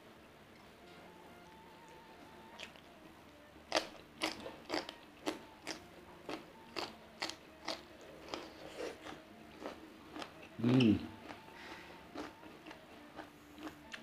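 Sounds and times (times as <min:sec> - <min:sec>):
crunchy chewing of raw vegetable: 0:03.7 - 0:11.4, 0:12.1 - 0:14.0.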